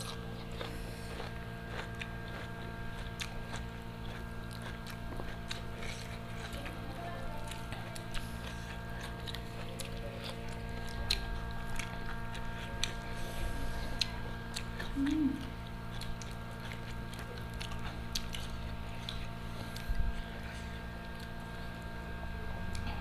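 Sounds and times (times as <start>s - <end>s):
chewing mouth sounds: 0.0s - 23.0s
steady low hum: 0.0s - 23.0s
brief low hummed sound: 21.9s - 23.0s.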